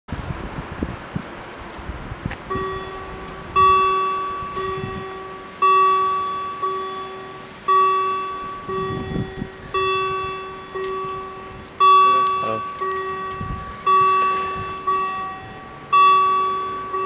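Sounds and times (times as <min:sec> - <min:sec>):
level crossing warning bells: 0:02.5 - 0:17.0.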